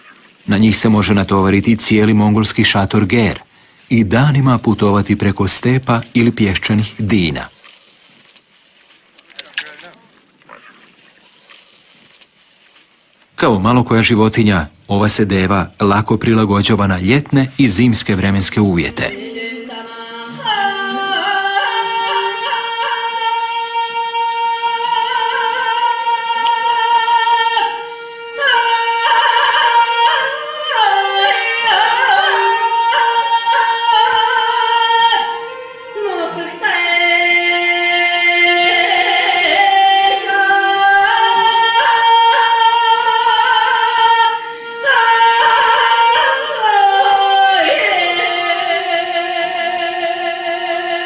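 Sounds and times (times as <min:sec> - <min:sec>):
high voice singing held notes: 0:17.0 - 0:50.8.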